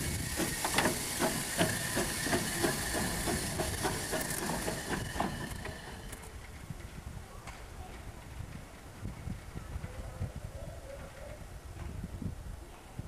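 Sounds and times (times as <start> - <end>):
steam locomotive hissing: 0.0 - 6.5.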